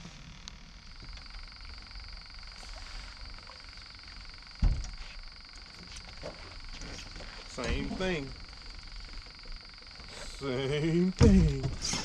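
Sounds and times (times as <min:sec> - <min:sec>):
frogs calling: 0:00.0 - 0:12.0
heavy low thump: 0:04.6 - 0:05.0, 0:11.2 - 0:11.9.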